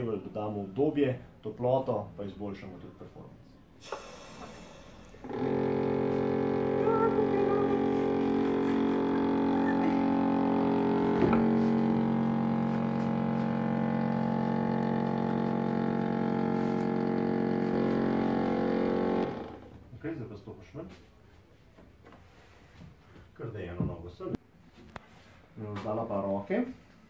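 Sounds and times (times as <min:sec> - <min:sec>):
pump motor droning: 0:03.8 - 0:19.8.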